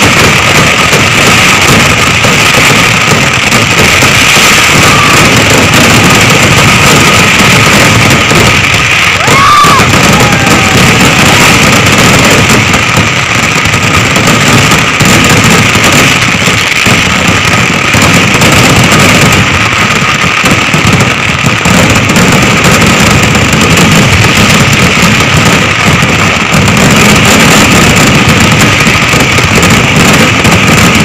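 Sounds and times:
fireworks barrage roaring: 0.0s - 31.0s.

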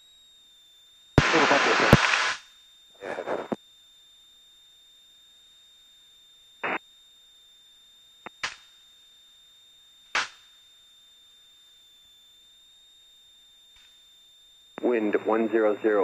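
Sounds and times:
faint high whine: 0.0s - 16.0s
radio clicks: 1.2s - 2.4s, 3.1s - 3.6s, 8.3s - 8.6s
bursts of static: 1.2s - 3.6s, 8.2s - 8.6s, 10.1s - 10.4s, 14.8s - 16.0s.

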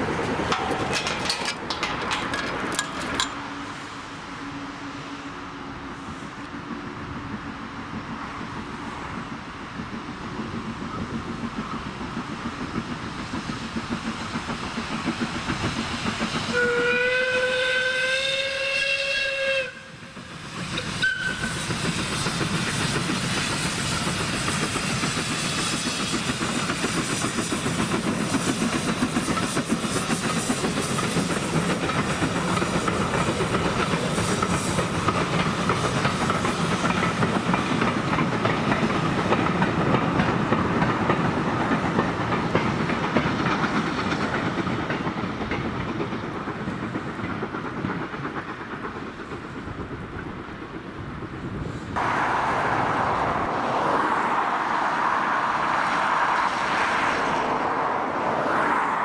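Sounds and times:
train wheel clatter: 0.0s - 3.6s, 8.3s - 52.0s
steam locomotive exhaust beat: 0.0s - 59.0s
steam hiss: 3.3s - 50.6s, 51.5s - 59.0s
steam whistle blast: 16.5s - 20.2s, 21.0s - 21.6s.

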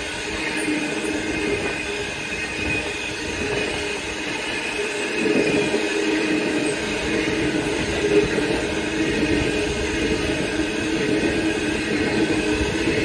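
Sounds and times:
electric train rumbling and whining: 0.0s - 13.0s.

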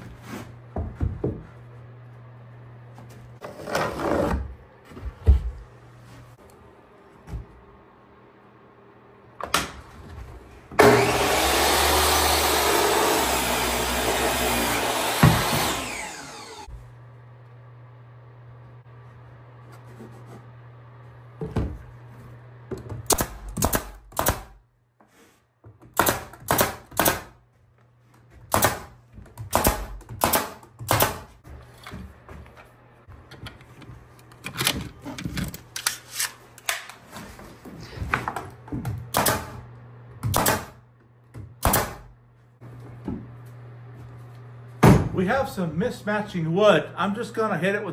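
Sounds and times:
power saw cutting wood: 10.8s - 16.7s.

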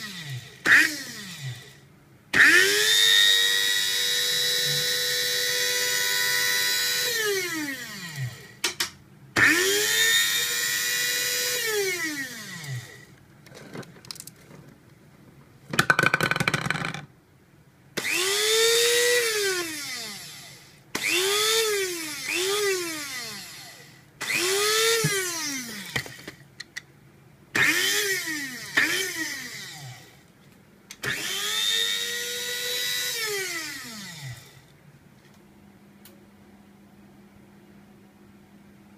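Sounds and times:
coffee grinder motor whining: 0.0s - 1.8s, 2.4s - 8.6s, 9.4s - 13.1s, 18.0s - 26.4s, 27.6s - 30.2s, 31.0s - 34.7s.

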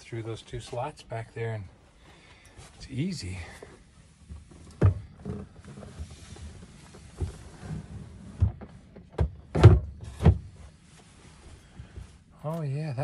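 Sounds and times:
dull thumps and knocks: 4.3s - 6.0s, 8.3s - 10.6s.

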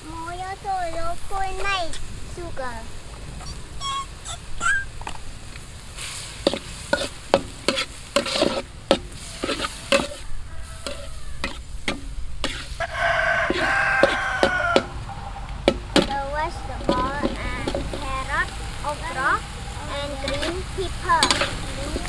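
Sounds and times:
food sizzling in a pan: 0.0s - 22.0s
drawn-out pitched call: 3.4s - 5.0s, 9.1s - 11.7s, 12.6s - 22.0s
utensil scraping a pan: 6.0s - 15.0s, 15.6s - 22.0s.

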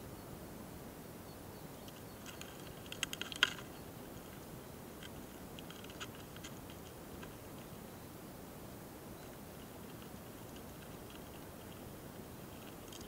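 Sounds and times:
faint steady hiss: 0.0s - 13.0s
beetles clicking: 1.8s - 7.8s, 9.2s - 13.0s.

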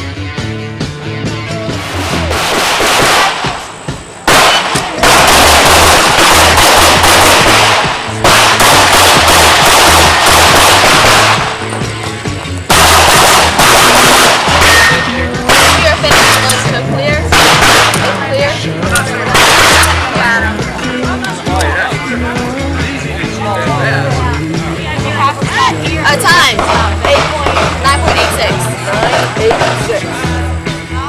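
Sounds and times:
music with steady bass beat: 0.0s - 31.0s
rapid pistol shots: 1.8s - 11.6s, 12.7s - 18.2s, 19.3s - 20.2s, 26.6s - 28.4s, 29.0s - 29.9s.

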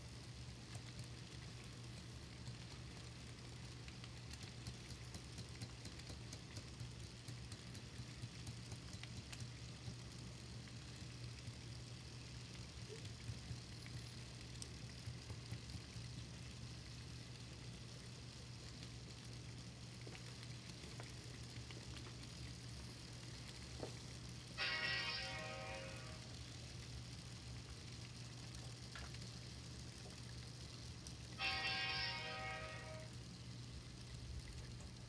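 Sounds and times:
wheels clicking on rails: 0.0s - 11.7s
model train rolling on track: 24.5s - 26.4s, 31.4s - 33.3s.

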